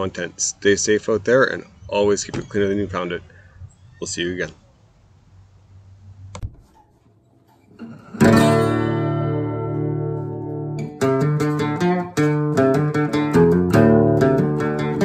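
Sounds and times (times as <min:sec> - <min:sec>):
strummed acoustic guitar: 0:07.5 - 0:15.0.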